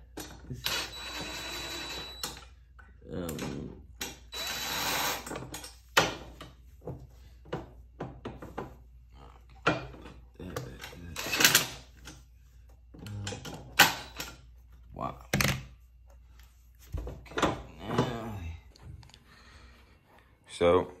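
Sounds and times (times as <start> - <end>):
knocks and clunks of hardware: 0.1 - 0.6, 5.2 - 8.8, 9.6 - 12.2, 17.0 - 18.2
cordless drill: 0.6 - 2.4, 4.2 - 5.4.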